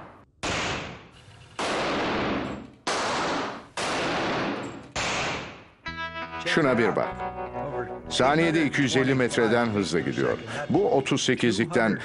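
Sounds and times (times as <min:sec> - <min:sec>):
pistol gunshots: 0:00.0 - 0:05.8.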